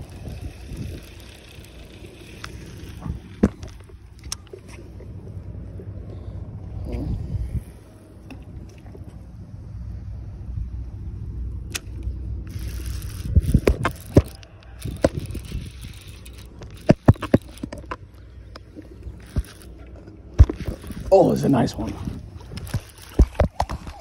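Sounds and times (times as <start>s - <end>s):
fishing reel clicks and knocks: 0.0s - 4.6s, 11.7s - 19.7s
wind rumbling on microphone: 0.0s - 24.0s.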